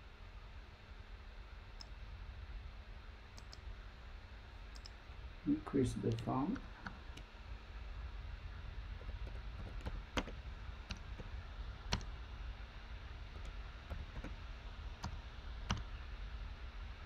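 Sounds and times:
low steady hum: 0.0s - 17.0s
computer keyboard key clicks: 9.2s - 11.3s.

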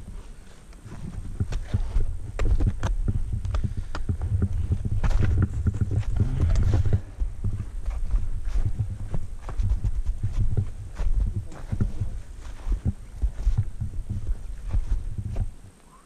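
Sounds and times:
low rumble: 0.0s - 15.6s
boots crunching into hard snow: 0.1s - 15.6s.

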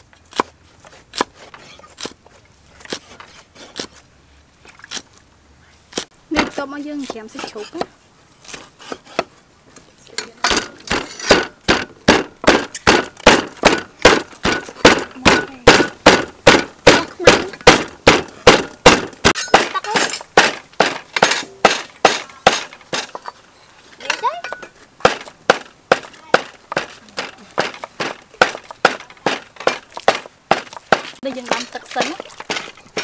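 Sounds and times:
meat cleaver chopping on wooden block: 10.9s - 19.1s.

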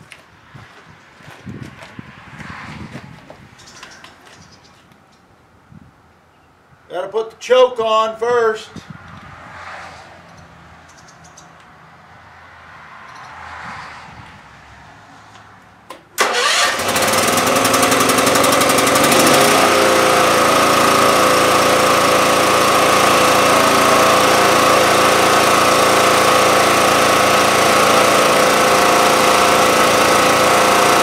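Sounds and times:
generator engine running: 16.2s - 31.0s.

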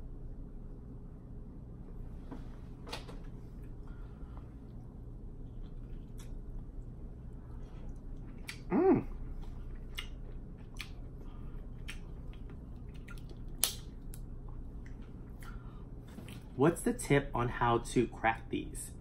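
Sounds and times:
chewing: 5.4s - 15.6s
person humming: 8.5s - 9.2s
crab shells cracking: 13.0s - 14.2s.

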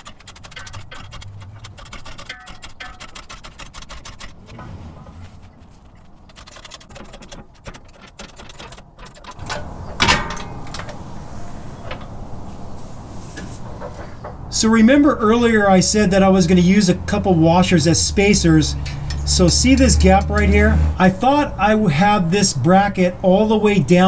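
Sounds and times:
metal clank: 0.0s - 3.4s, 8.5s - 12.6s, 18.7s - 20.6s
floor jack clicking and rattling: 0.0s - 4.7s, 6.2s - 11.0s.

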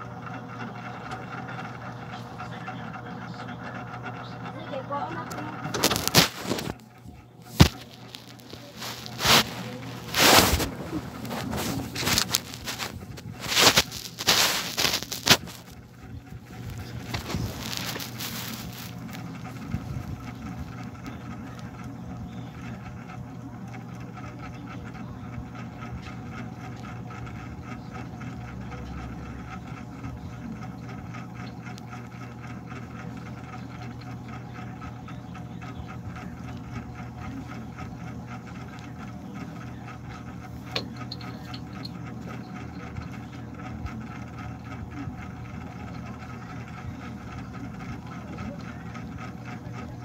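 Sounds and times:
small motor humming with flutter: 0.0s - 50.0s.

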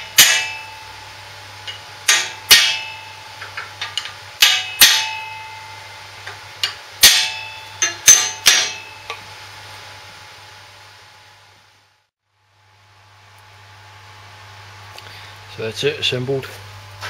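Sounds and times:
hammer striking metal: 0.0s - 9.3s.

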